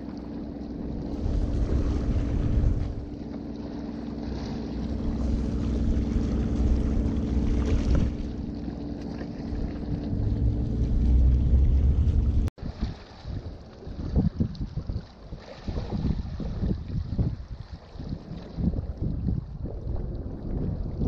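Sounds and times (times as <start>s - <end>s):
steady low hum: 0.0s - 12.5s
wind buffeting microphone: 0.8s - 3.2s, 4.5s - 8.7s, 9.3s - 21.0s.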